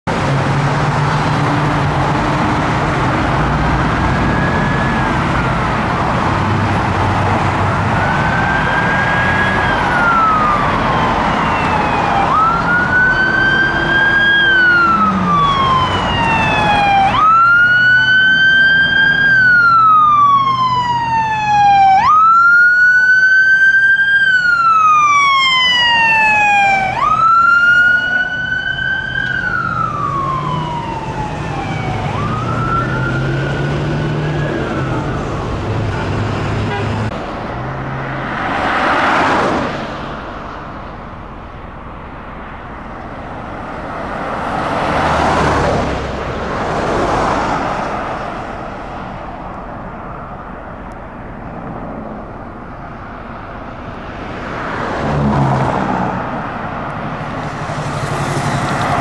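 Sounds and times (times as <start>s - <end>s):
road traffic: 0.0s - 59.0s
fire truck siren wailing: 0.1s - 37.2s, 54.7s - 59.0s.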